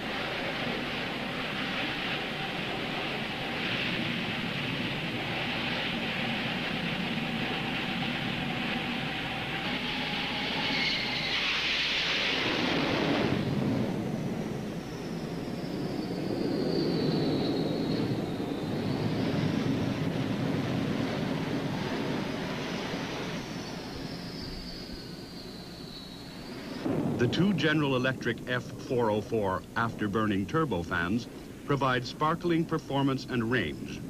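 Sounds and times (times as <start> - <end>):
jet engines running: 0.0 - 34.0.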